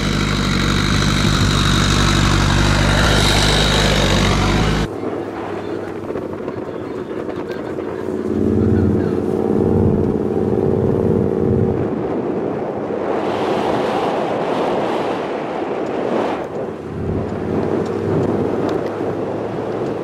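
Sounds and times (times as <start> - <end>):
loud rushing noise: 0.0 - 5.0
vehicle engine running: 0.0 - 12.2, 16.5 - 20.0.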